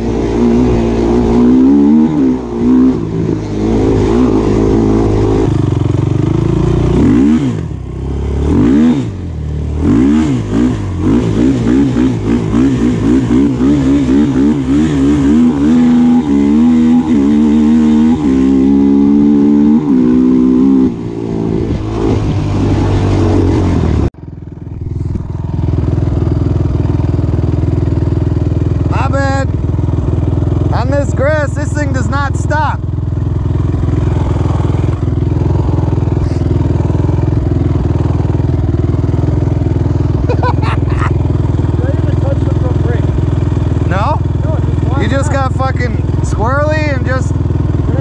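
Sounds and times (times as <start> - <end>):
quad engine revving: 0.0 - 48.0
engine idling: 24.2 - 48.0.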